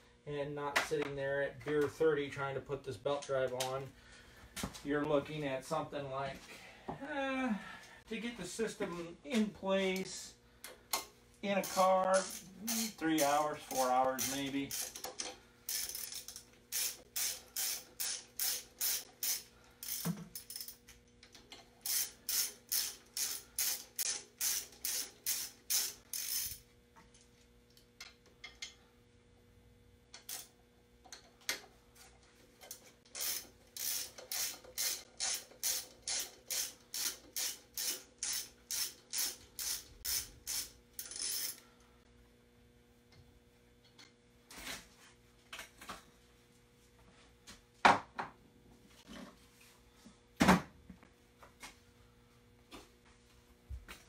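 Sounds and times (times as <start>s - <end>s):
socket ratchet clicking: 11.6s - 20.8s, 21.9s - 26.6s, 33.1s - 41.6s.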